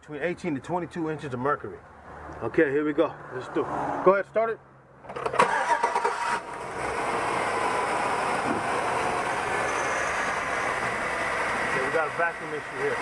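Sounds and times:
starter cranking engine: 5.1 - 9.0
car engine idling: 5.5 - 13.0.

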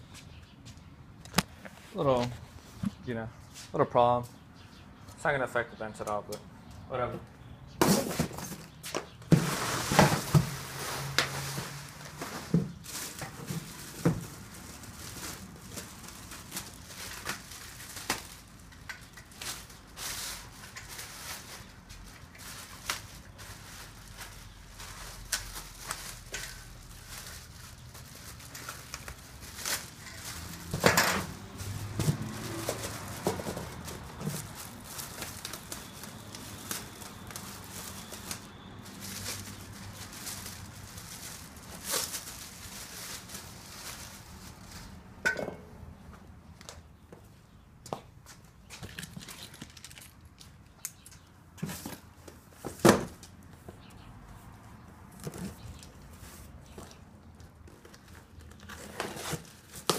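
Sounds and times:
plastic wrapping crinkling: 9.3 - 45.2, 48.8 - 51.0.

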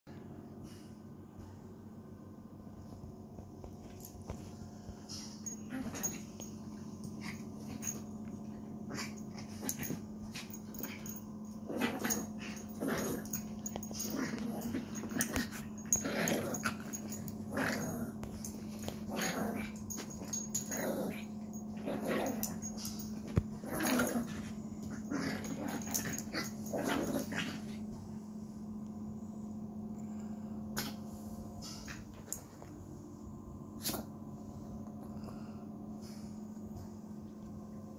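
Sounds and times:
steady low hum: 0.1 - 37.9
small dog growling and huffing: 4.0 - 28.4.

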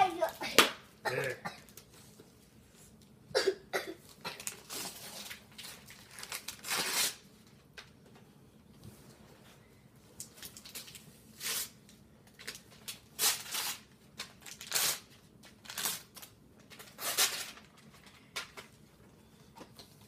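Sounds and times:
wrapping paper tearing: 4.3 - 7.3, 10.4 - 11.8, 12.4 - 18.0.

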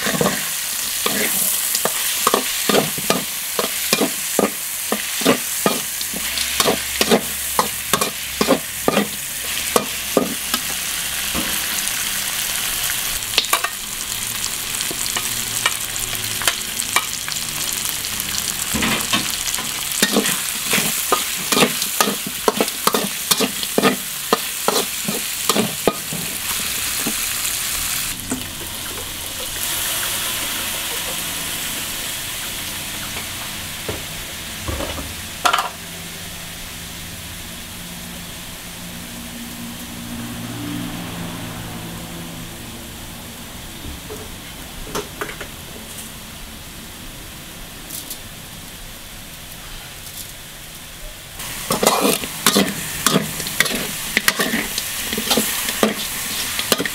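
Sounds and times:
metal spatula scraping wok: 0.0 - 13.9, 18.5 - 31.8, 51.4 - 56.9
hot oil sizzling: 0.0 - 56.9.

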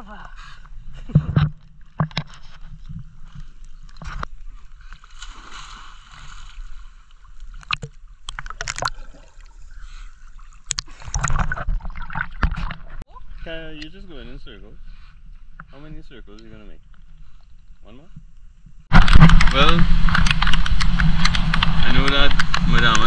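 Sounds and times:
wash of moving water: 3.5 - 13.0
water splashing from swimming: 4.9 - 13.0.

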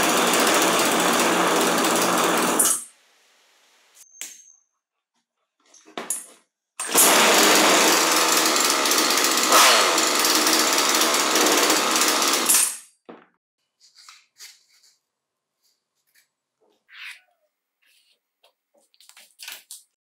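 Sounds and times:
chainsaw engine running: 0.0 - 2.8, 6.8 - 12.6.

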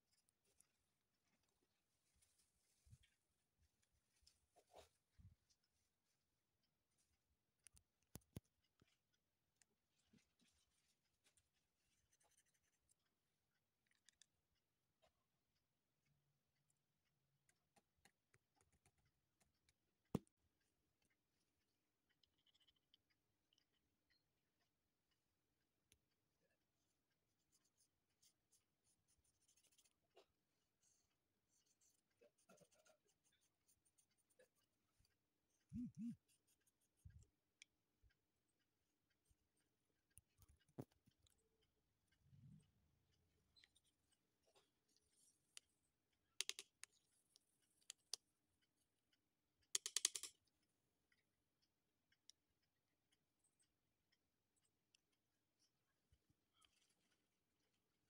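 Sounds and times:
paintbrush scratching on paper: 9.8 - 13.6, 26.8 - 37.1
paintbrush clicking on plastic palette: 46.4 - 48.3, 49.6 - 50.6.

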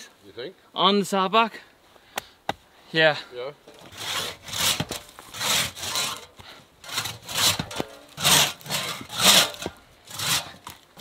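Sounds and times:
crosscut saw cutting log: 3.8 - 10.8.

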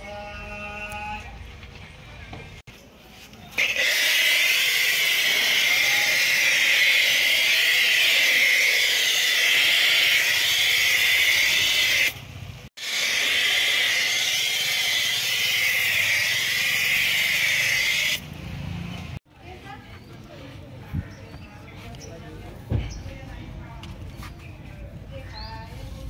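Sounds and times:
pressure washer water jet hissing: 3.6 - 12.2, 12.8 - 18.2.

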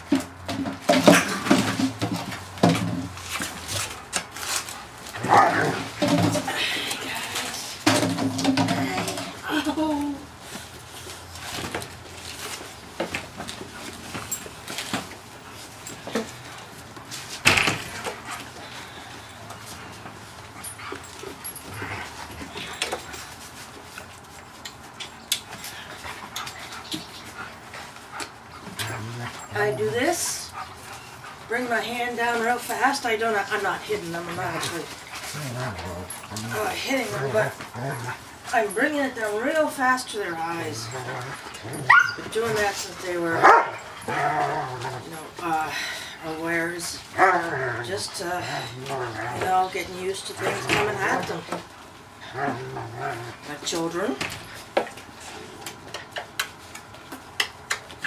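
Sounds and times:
knocks and scuffling: 0.0 - 58.0
puppies whimpering and panting: 18.0 - 54.0
puppies whining and yapping: 40.6 - 45.0
puppy yelping: 41.6 - 42.3.

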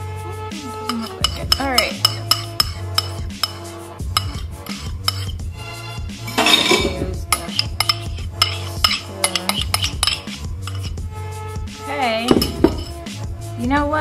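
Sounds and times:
background music: 0.0 - 14.0
metal spoon scraping ceramic ramekin: 0.8 - 5.4, 6.2 - 11.0, 12.3 - 13.0.

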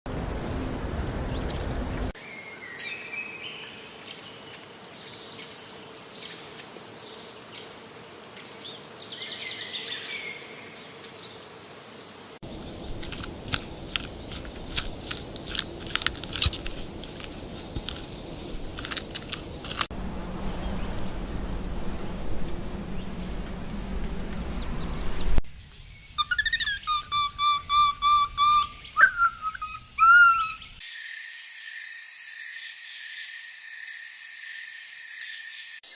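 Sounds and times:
high chirping calls: 0.4 - 2.1, 20.7 - 30.8
monkey chewing crunching clicks: 12.7 - 19.9
short whistled calls: 26.2 - 30.8.

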